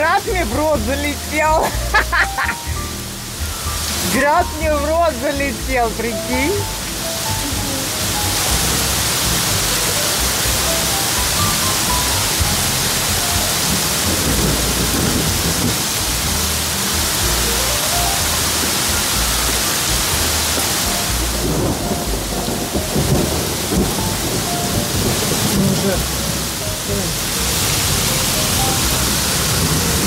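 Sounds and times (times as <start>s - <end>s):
heavy rain and hail: 0.0s - 30.0s
thunder rumbling: 10.4s - 16.4s, 20.1s - 30.0s.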